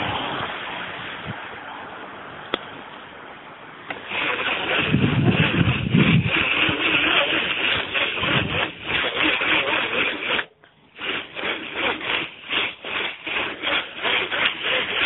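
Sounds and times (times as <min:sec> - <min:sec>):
wind noise on microphone: 0:00.0 - 0:01.6, 0:04.0 - 0:10.4.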